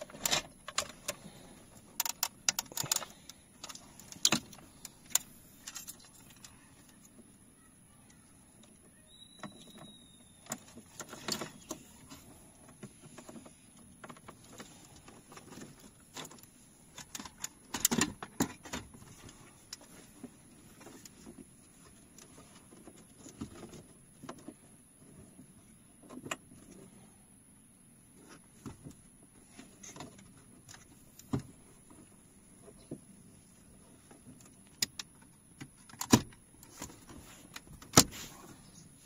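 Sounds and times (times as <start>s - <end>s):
wiring harness rustling: 0.0s - 7.2s
plastic clicks and knocks: 2.0s - 5.2s.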